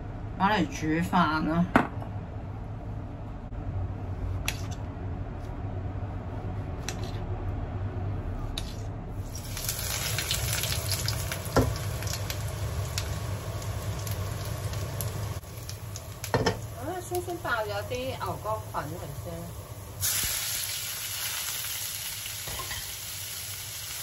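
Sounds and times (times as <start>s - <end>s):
low steady hum: 0.0s - 21.4s
oil sizzling in a wok: 9.2s - 24.0s.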